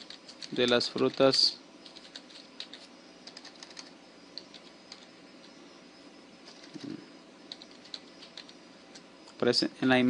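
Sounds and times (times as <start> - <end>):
keyboard keystrokes: 0.1 - 5.0, 7.5 - 9.0.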